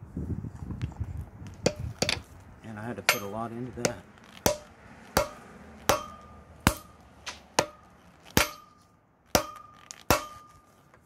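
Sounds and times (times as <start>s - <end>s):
hammer blows on anvil: 3.0s - 6.9s
anvil metallic ring: 3.1s - 6.9s, 8.4s - 8.8s.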